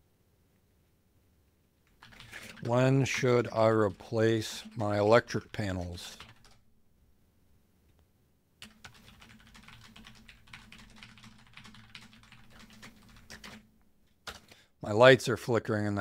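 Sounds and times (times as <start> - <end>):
fast typing on keyboard: 1.9 - 6.6, 8.6 - 13.7, 14.3 - 14.5.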